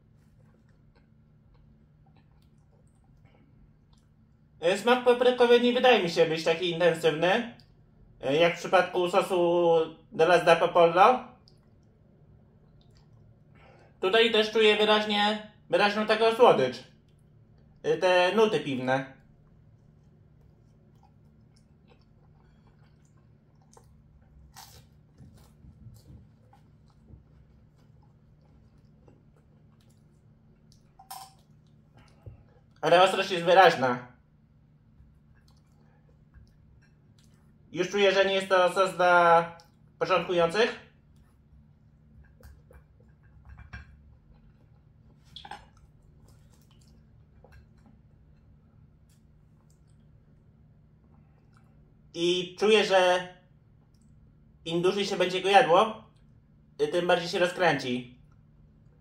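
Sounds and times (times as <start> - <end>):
person chewing bread: 0.0 - 4.6, 11.3 - 14.0, 16.9 - 17.8, 19.1 - 32.8, 34.2 - 37.7, 39.5 - 40.0, 40.8 - 52.1, 58.2 - 59.0
low room hum: 0.0 - 59.0.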